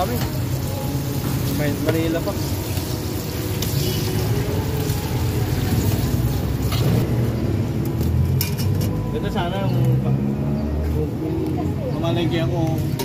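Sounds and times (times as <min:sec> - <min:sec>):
hot oil sizzling: 0:00.0 - 0:08.7.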